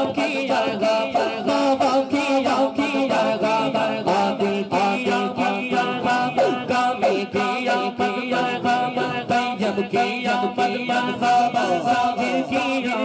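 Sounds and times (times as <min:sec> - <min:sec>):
man singing devotional song: 0:00.0 - 0:13.0
steady rhythmic beat: 0:00.0 - 0:13.0.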